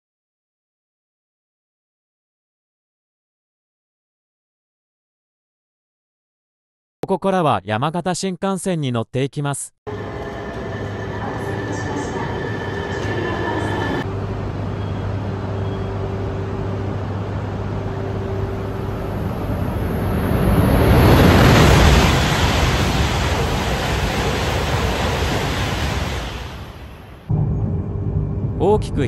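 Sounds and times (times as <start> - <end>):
train motor whine: 9.9 - 26.6
high-speed train passing: 9.9 - 29.0
platform hum: 9.9 - 29.0.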